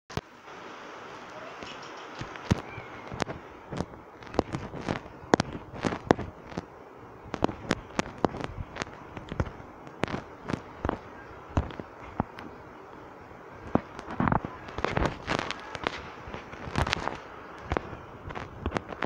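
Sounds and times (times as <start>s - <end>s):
sharp cracks: 13.6s - 19.0s.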